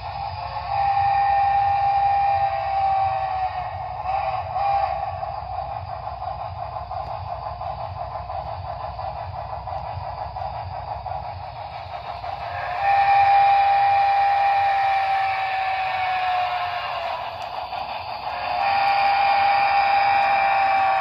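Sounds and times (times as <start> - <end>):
steam whistle blast: 0.0 - 5.5, 12.4 - 17.5, 18.2 - 21.0
steam locomotive chuffing: 0.0 - 21.0.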